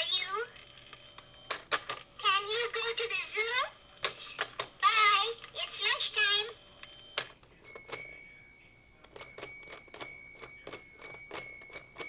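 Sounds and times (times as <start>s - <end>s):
toy telephone bell ringing: 4.8s - 12.0s.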